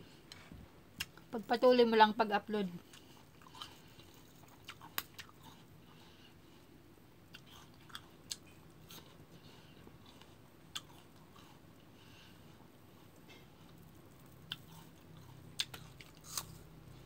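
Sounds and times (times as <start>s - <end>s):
wet chewing: 2.8s - 6.2s, 7.3s - 11.9s, 13.0s - 17.0s
sharp crunches of biting fruit: 15.6s - 16.7s.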